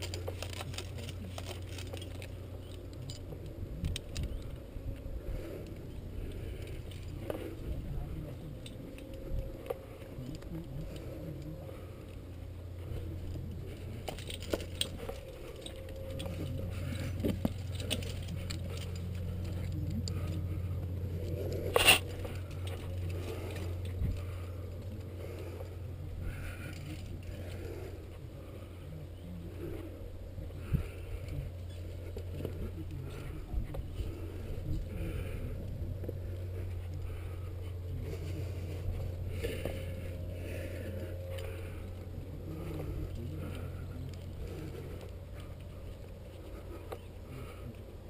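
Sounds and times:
climbing gear clinking: 0:00.0 - 0:28.8
low rumble: 0:00.0 - 0:48.0.

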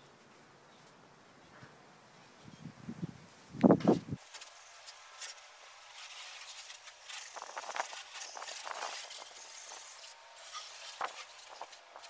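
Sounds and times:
garden hose water spraying: 0:03.6 - 0:12.0.

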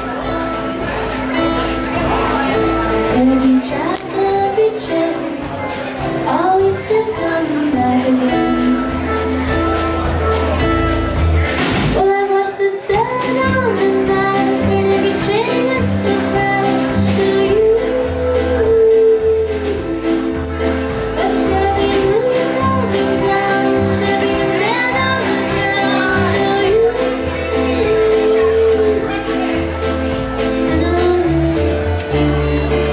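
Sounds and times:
accordion: 0:00.0 - 0:32.9
drum kit with snare and cymbal: 0:00.0 - 0:32.9
plucked upright bass: 0:00.0 - 0:32.9
strummed acoustic guitar: 0:00.0 - 0:32.9
woman singing: 0:03.0 - 0:09.2, 0:12.0 - 0:20.4, 0:21.1 - 0:29.2, 0:30.4 - 0:32.9.

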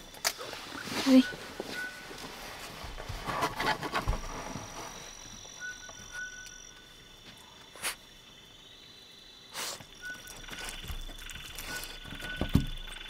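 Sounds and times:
insects calling: 0:00.0 - 0:13.0
dog chewing and crunching: 0:10.2 - 0:12.3.

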